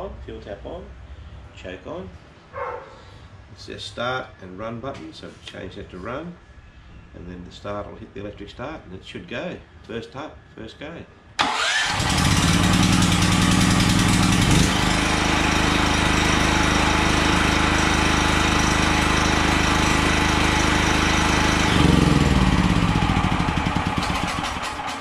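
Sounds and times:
portable generator engine running: 0:11.4 - 0:25.0.

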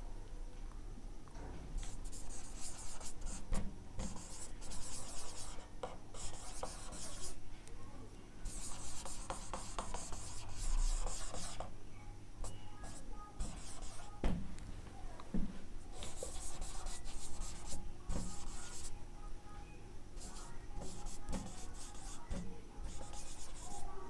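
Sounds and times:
marker squeaking on whiteboard: 0:01.8 - 0:03.4, 0:04.0 - 0:05.6, 0:06.2 - 0:07.4, 0:08.5 - 0:11.7, 0:12.4 - 0:14.1, 0:15.9 - 0:18.9, 0:20.2 - 0:23.9.

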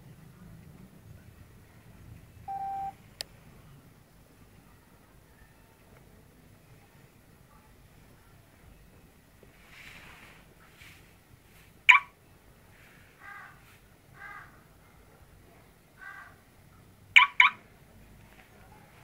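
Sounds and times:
crows cawing: 0:13.2 - 0:13.6, 0:14.2 - 0:14.6, 0:16.0 - 0:16.4.

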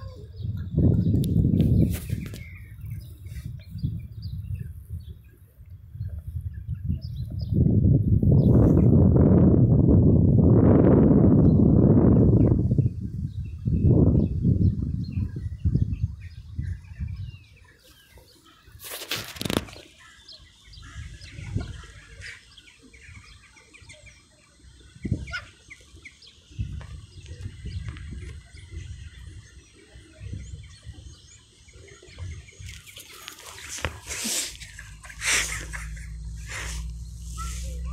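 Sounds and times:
small birds chirping: 0:00.0 - 0:08.9, 0:11.4 - 0:37.9
low wind rumble: 0:00.0 - 0:17.6, 0:33.7 - 0:37.9.

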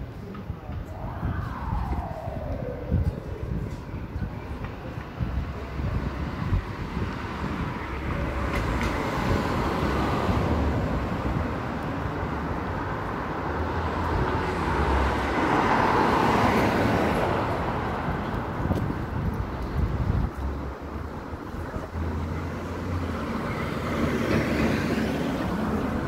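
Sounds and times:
street traffic: 0:00.0 - 0:26.0
steady low rumble: 0:00.5 - 0:06.7
car passing: 0:00.7 - 0:05.0.

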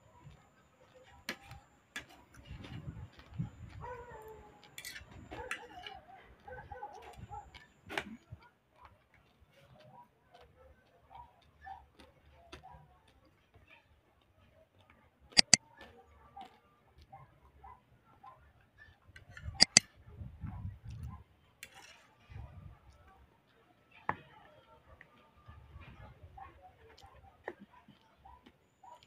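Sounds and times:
fork scraping on plate: 0:04.6 - 0:05.7, 0:15.4 - 0:15.6, 0:19.2 - 0:19.8
mouse clicks: 0:15.4 - 0:15.6, 0:19.5 - 0:19.8.

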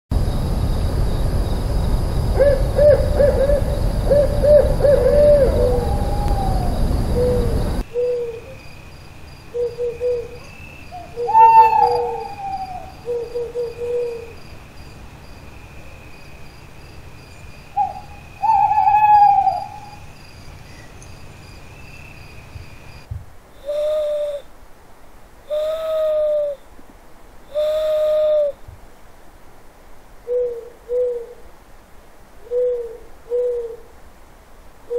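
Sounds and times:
low rumble: 0:00.1 - 0:07.8
owls hooting: 0:02.4 - 0:08.6, 0:09.5 - 0:14.4, 0:17.8 - 0:20.0, 0:23.6 - 0:24.5, 0:25.5 - 0:26.6, 0:27.5 - 0:28.6.

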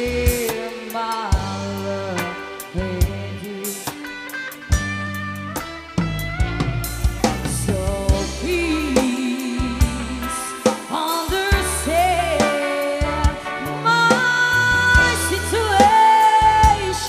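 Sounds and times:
bass line: 0:00.0 - 0:00.6, 0:01.4 - 0:17.0
person singing with vibrato: 0:00.0 - 0:04.6, 0:07.4 - 0:17.0
drum kit: 0:00.0 - 0:17.0.

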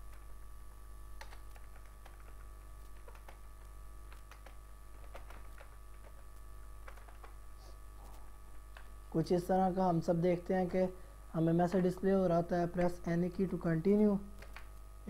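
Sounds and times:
typing on a laptop keyboard: 0:01.2 - 0:07.4, 0:14.4 - 0:14.7.

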